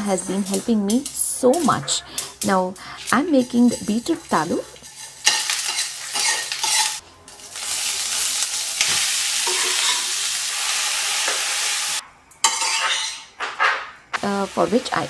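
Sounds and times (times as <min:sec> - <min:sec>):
spatula stirring in a pan: 0:00.0 - 0:07.0
hot oil sizzling in a frying pan: 0:00.0 - 0:12.8, 0:14.2 - 0:15.0.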